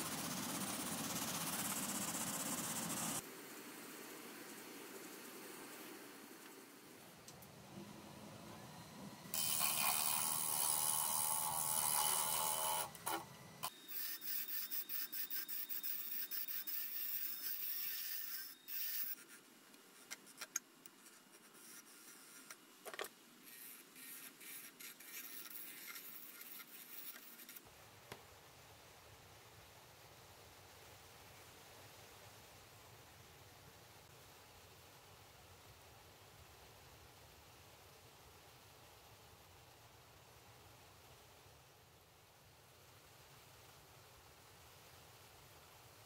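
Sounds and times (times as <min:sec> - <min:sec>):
lathe tool scraping wood: 0:09.3 - 0:19.4.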